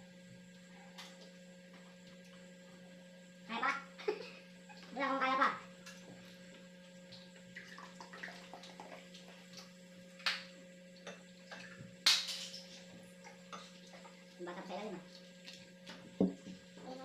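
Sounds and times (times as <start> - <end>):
cola pouring and fizzing: 7.6 - 9.1.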